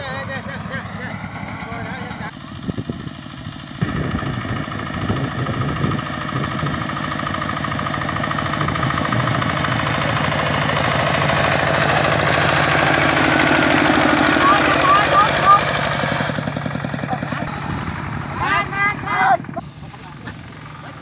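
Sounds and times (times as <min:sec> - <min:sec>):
diesel engine chugging: 0:00.0 - 0:21.0.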